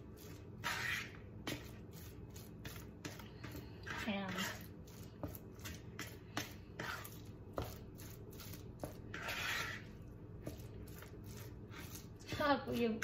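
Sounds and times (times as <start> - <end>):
fork scraping bowl: 0.0 - 13.0.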